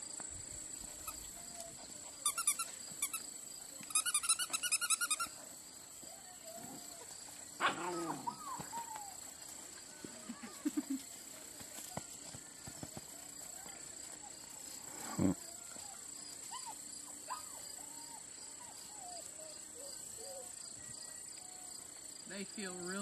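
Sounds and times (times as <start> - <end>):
rapid high chirping: 2.2 - 5.4.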